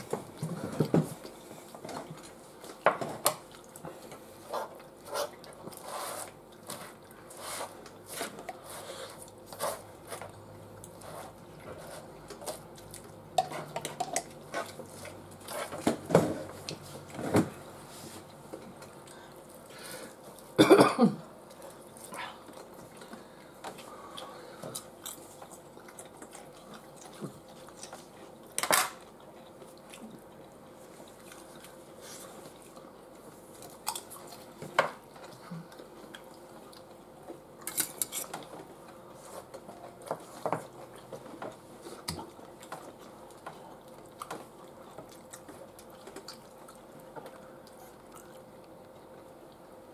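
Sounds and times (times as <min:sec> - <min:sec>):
chewing crunchy chips: 0:21.4 - 0:38.5, 0:40.8 - 0:49.6.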